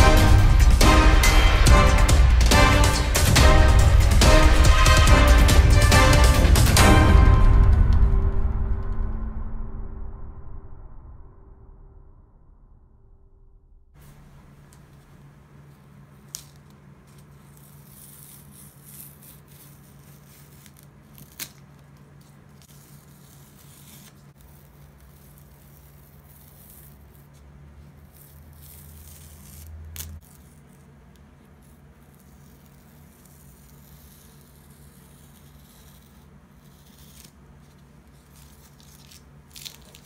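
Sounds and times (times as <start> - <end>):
tape peeling rustle: 14.0 - 40.0.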